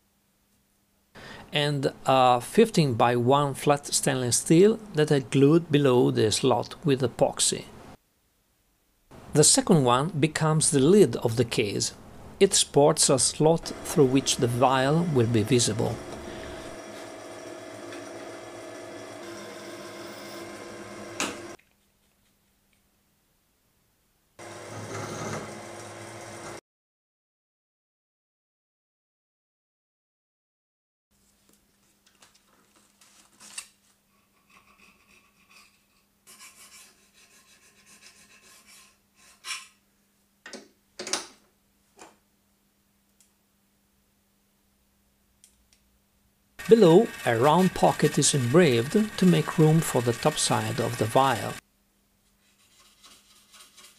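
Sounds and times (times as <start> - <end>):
drill press motor whining: 13.6 - 21.6, 24.4 - 26.6, 46.6 - 51.6
drill rasping on brass: 13.6 - 21.6, 46.6 - 51.6
file rasping on brass: 34.4 - 39.8, 52.4 - 53.9.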